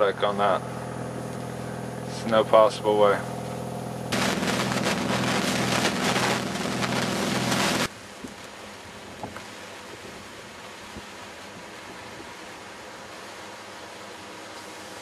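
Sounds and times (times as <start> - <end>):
boat engine humming: 0.0 - 8.8
low steady hiss: 4.1 - 15.0.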